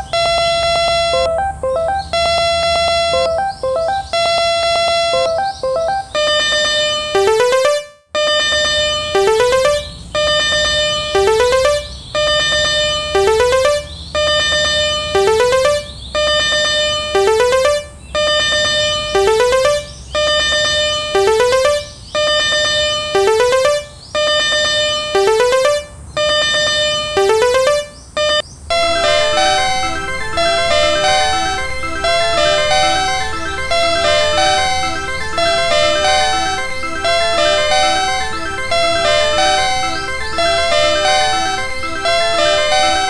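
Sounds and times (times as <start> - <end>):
synthesizer music: 0.0 - 24.0, 24.6 - 26.0, 27.1 - 28.0, 28.8 - 43.0.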